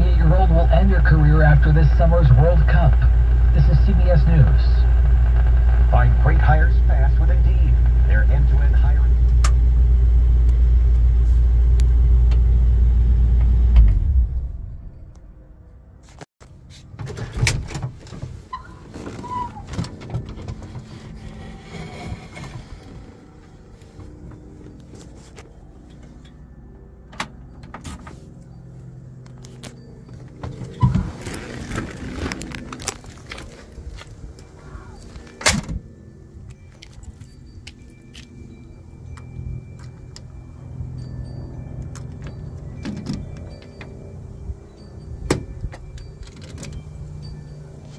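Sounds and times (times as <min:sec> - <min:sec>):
keys jingling: 0:27.3 - 0:35.6, 0:36.4 - 0:40.3, 0:45.5 - 0:47.9.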